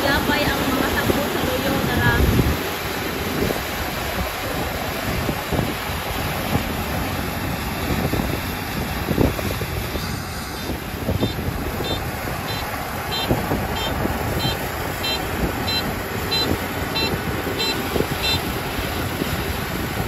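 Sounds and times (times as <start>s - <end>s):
combine harvester drone: 0.0s - 20.0s
wind buffeting microphone: 0.0s - 20.0s
high electronic beeps: 10.6s - 18.4s.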